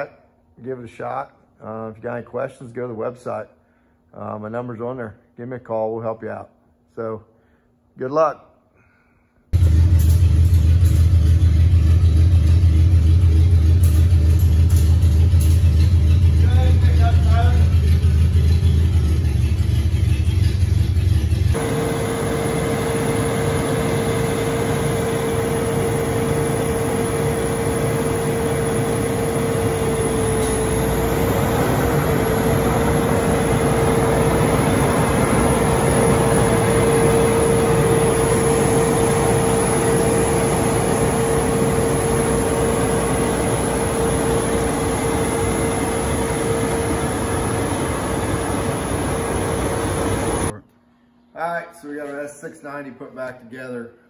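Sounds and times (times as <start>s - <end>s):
combine harvester running: 9.6s - 50.6s
mid-pitched machine whine: 9.6s - 51.3s.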